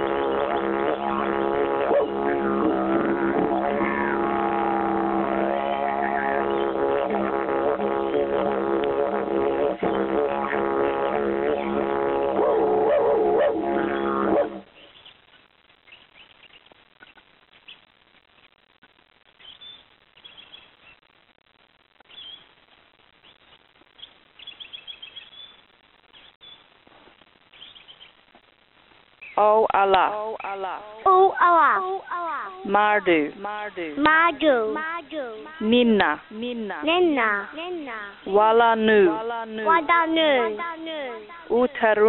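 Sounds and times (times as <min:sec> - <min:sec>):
didgeridoo droning: 0:00.0 - 0:14.6.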